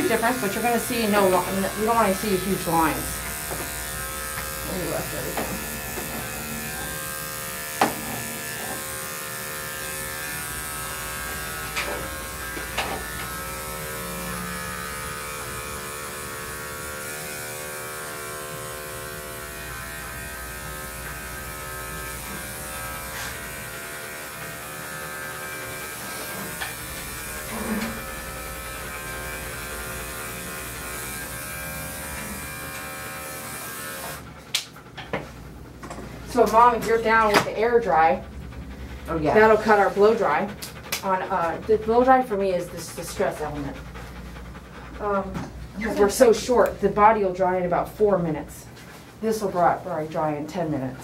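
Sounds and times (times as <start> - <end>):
electric clippers buzzing: 0.0 - 34.8.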